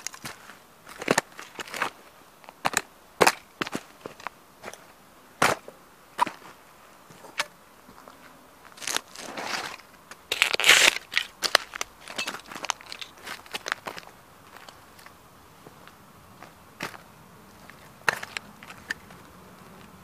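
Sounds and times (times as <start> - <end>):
boots crunching plastic on gravel: 0.0 - 4.8, 8.6 - 15.1, 16.4 - 19.2.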